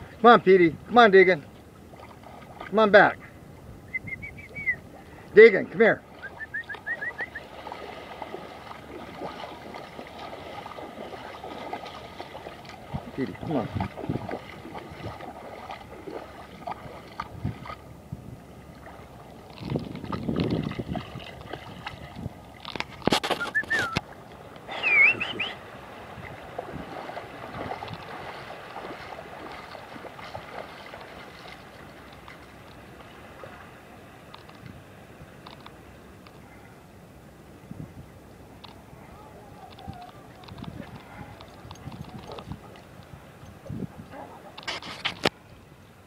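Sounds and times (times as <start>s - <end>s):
water lapping on sand: 0.0s - 46.0s
short whistles: 3.9s - 4.8s, 6.2s - 7.5s, 23.3s - 24.0s, 24.7s - 25.6s.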